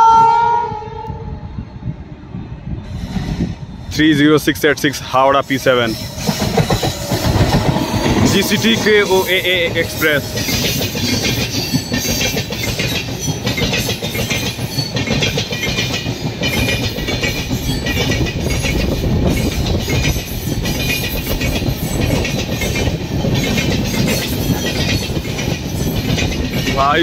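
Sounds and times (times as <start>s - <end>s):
train wheels clattering over rail joints: 5.4s - 27.0s.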